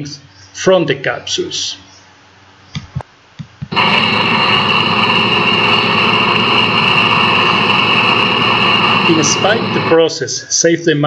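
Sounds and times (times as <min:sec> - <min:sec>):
combine harvester running: 0:03.7 - 0:10.0.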